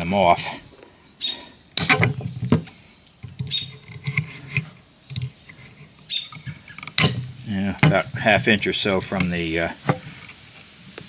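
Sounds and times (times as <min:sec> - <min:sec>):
plier jaws scraping metal and wood: 0:03.2 - 0:09.4.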